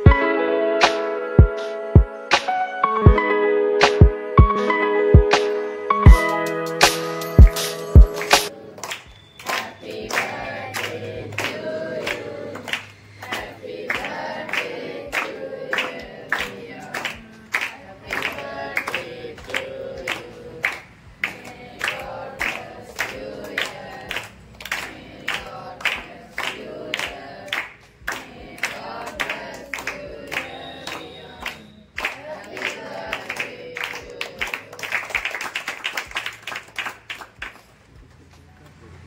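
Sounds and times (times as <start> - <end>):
rhythmic hand-clapping: 0.8 - 3.2, 3.8 - 38.8
group of voices singing: 6.0 - 35.0.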